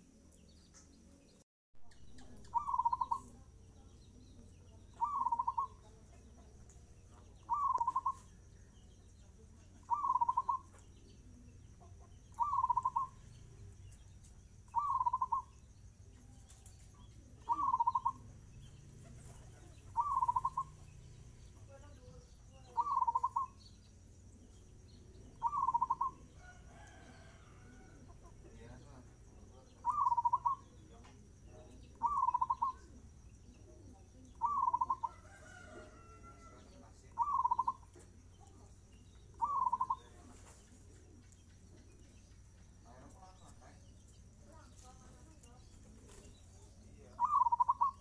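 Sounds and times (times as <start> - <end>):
dove cooing: 2.2 - 3.4, 5.0 - 5.9, 7.4 - 8.3, 9.8 - 10.7, 12.3 - 13.2, 14.7 - 15.5, 17.2 - 18.2, 19.0 - 20.9, 22.7 - 23.6, 25.3 - 28.0, 29.7 - 30.8, 31.9 - 33.0, 33.7 - 37.9, 39.3 - 41.2, 47.2 - 48.0.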